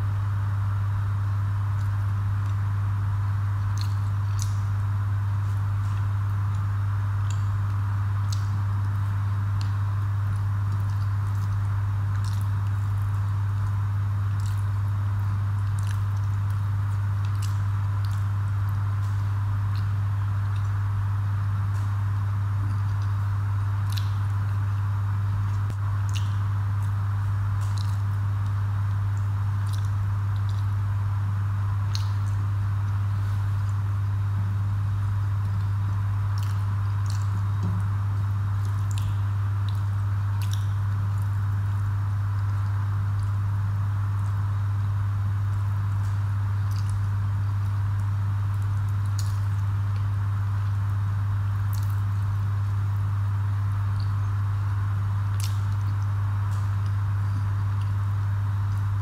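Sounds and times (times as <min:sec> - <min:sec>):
steady low hum: 0:00.0 - 0:59.0
wet mouth clicks: 0:03.7 - 0:04.6, 0:10.7 - 0:14.8, 0:17.2 - 0:18.3, 0:23.8 - 0:24.5, 0:25.4 - 0:30.8, 0:31.8 - 0:34.2, 0:35.4 - 0:37.9, 0:38.6 - 0:41.3, 0:46.0 - 0:47.1, 0:51.7 - 0:52.2, 0:53.9 - 0:54.4, 0:55.3 - 0:58.0
person chewing: 0:36.4 - 0:37.9.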